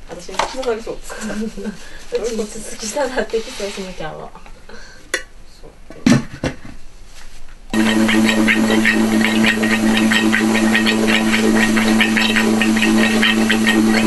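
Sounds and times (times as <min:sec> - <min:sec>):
vacuum pump humming and rattling: 0:07.7 - 0:14.0.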